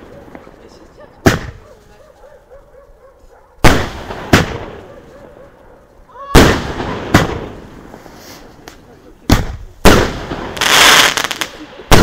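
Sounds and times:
firework bangs: 1.2s - 1.6s, 3.6s - 4.9s, 6.1s - 12.0s.

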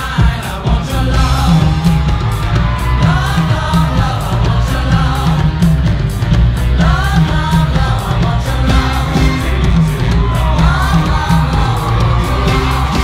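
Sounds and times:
loud dance music: 0.0s - 13.0s
voice singing gliding in pitch: 6.8s - 13.0s.

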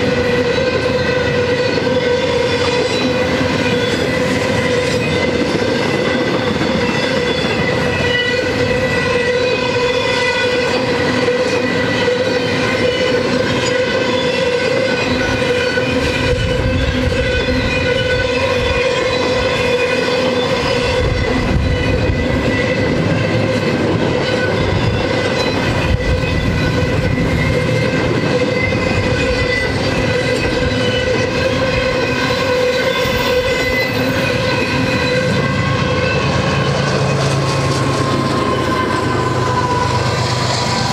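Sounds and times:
diesel locomotive engine drone: 0.0s - 40.9s
freight train wheels rumbling: 0.0s - 40.9s.

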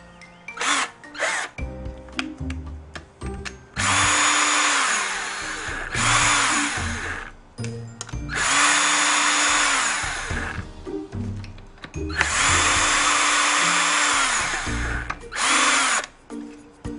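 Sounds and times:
cordless drill whining: 0.6s - 1.6s, 3.8s - 7.4s, 8.3s - 10.6s, 12.0s - 16.1s
tool handling clicks: 0.6s - 4.5s, 7.1s - 9.4s, 11.3s - 12.9s, 13.8s - 16.6s.

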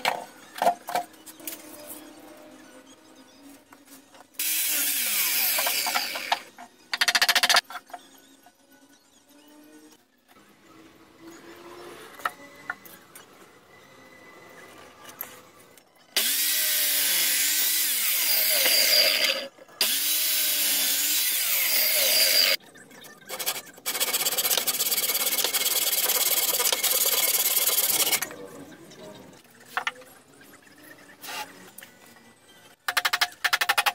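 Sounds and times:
power tool running on wood: 16.2s - 22.6s.

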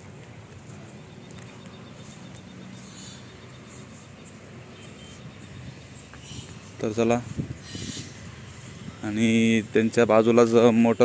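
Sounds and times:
steady low hiss: 0.0s - 11.0s
high-pitched chirping: 0.8s - 9.2s.

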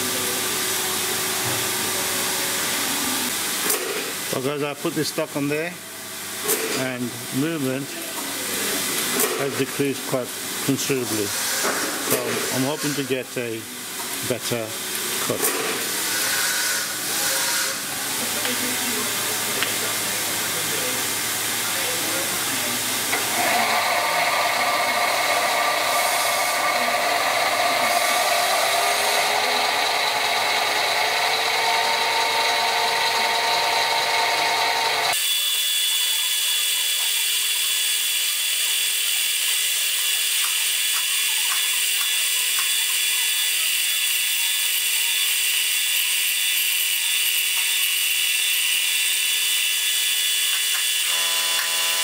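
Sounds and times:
lathe motor whine: 16.0s - 40.3s, 45.1s - 52.0s.

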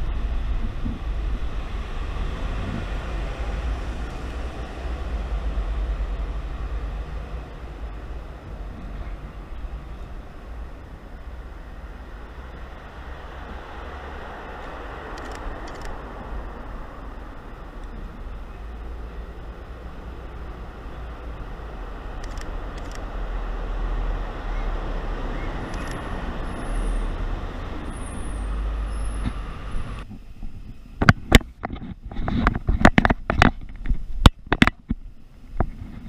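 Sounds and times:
vehicle passing: 0.0s - 30.0s
road traffic rumbling: 0.0s - 36.0s
faint high brake squeal: 27.8s - 29.9s.

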